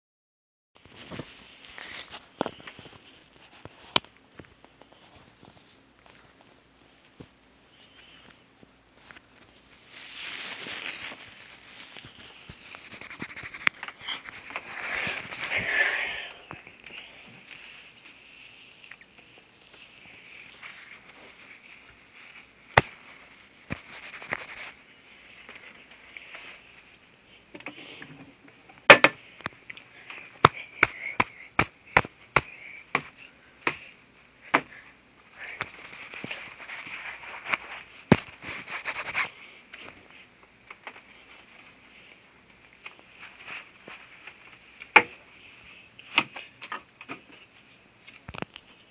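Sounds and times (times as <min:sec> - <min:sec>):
scraping and rubbing: 0:09.8 - 0:15.8, 0:19.7 - 0:24.8, 0:35.6 - 0:39.3.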